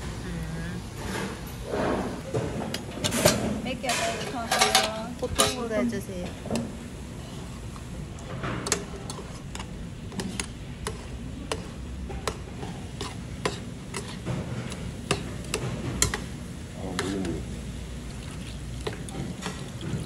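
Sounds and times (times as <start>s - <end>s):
metal utensils clinking on pan: 3.0s - 5.8s.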